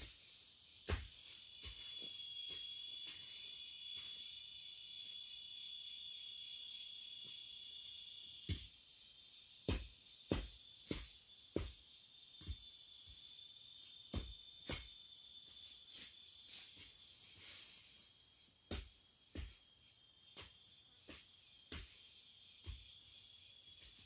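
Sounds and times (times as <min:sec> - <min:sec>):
hoe chopping dry soil: 0:00.0 - 0:04.2, 0:09.6 - 0:12.7, 0:14.0 - 0:15.1, 0:18.6 - 0:23.1
high insect drone: 0:00.0 - 0:24.0
bird chirps: 0:18.0 - 0:23.8.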